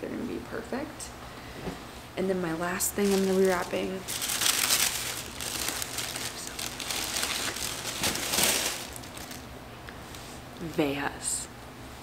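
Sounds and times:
paper packaging crinkling: 2.9s - 9.5s.

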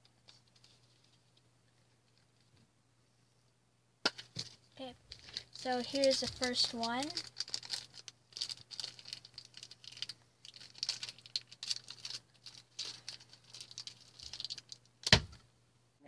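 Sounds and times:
plastic wrapper crinkling: 4.4s - 15.3s.

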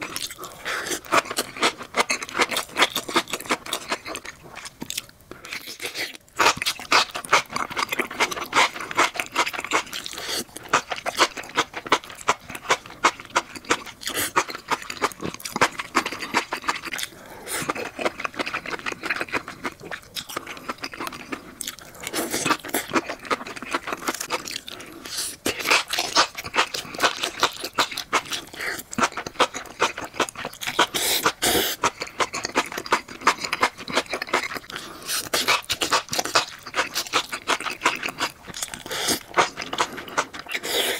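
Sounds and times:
close-miked eating mushrooms: 0.0s - 40.9s.

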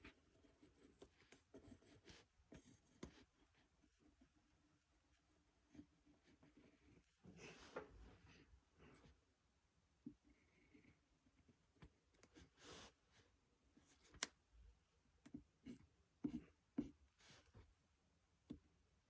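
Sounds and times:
pencil scratching on paper: 0.0s - 7.6s, 10.1s - 13.0s, 15.6s - 17.7s.

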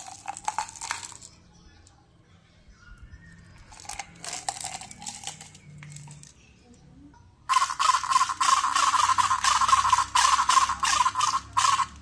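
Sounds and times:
hard candies rattling in plastic jar: 0.0s - 1.4s, 3.7s - 6.4s, 7.5s - 12.0s
toy rattling buzz: 0.0s - 1.4s, 3.7s - 6.3s, 7.5s - 12.0s.

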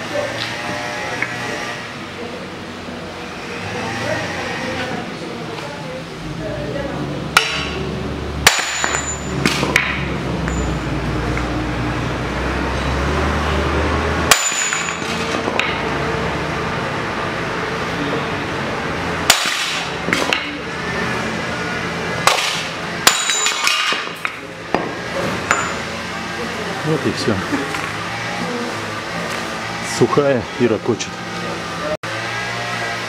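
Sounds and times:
hammer striking metal: 7.4s - 7.8s, 8.4s - 10.9s, 14.2s - 16.0s, 19.2s - 20.6s, 22.2s - 25.9s.

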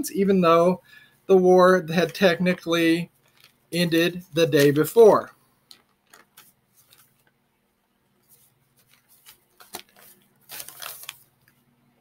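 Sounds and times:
paper rustling: 3.2s - 5.0s, 5.7s - 7.3s, 8.2s - 11.6s.

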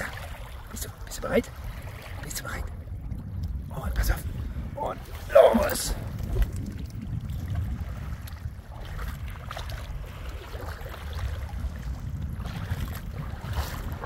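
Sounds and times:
small waves lapping: 0.0s - 14.0s
wind buffeting microphone: 0.0s - 14.0s.

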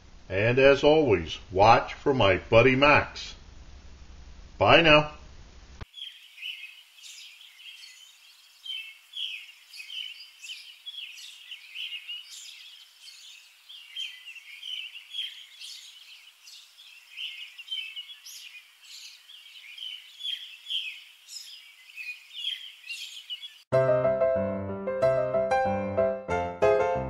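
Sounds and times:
songbirds chirping: 0.0s - 3.0s, 5.8s - 23.7s.

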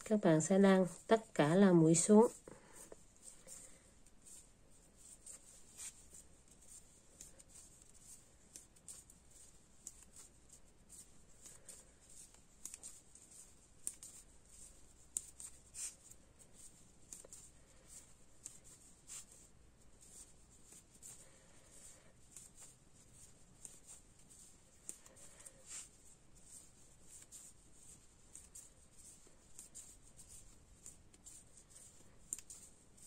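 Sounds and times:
yarn rustling: 0.0s - 33.0s
knitting needles clicking: 5.0s - 19.5s, 26.5s - 33.0s.

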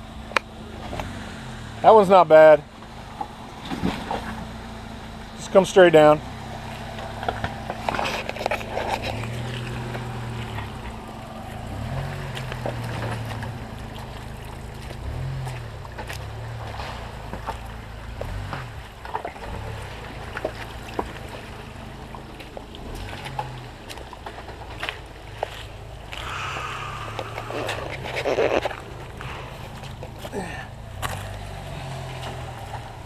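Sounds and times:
engines running at low revs: 0.0s - 33.0s.

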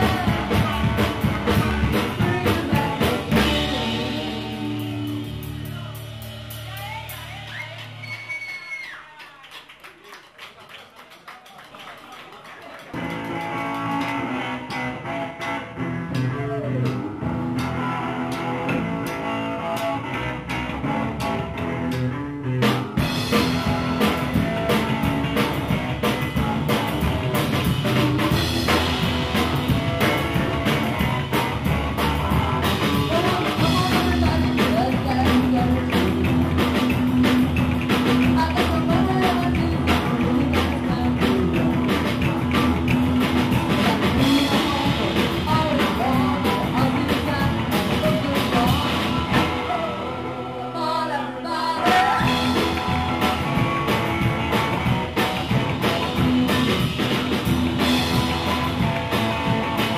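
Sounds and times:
steady drum beat: 0.0s - 8.1s, 22.6s - 50.3s, 51.8s - 59.9s
rock and roll band playing: 0.0s - 8.8s, 12.8s - 59.9s.

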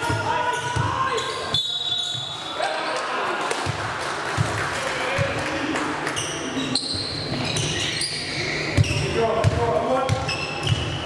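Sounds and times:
voices echoing in hall: 0.0s - 11.0s
ball bouncing on hall floor: 8.7s - 11.0s.

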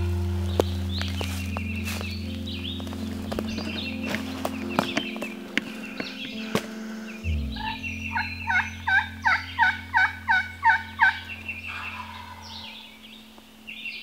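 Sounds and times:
turkey yelping: 7.6s - 13.0s.

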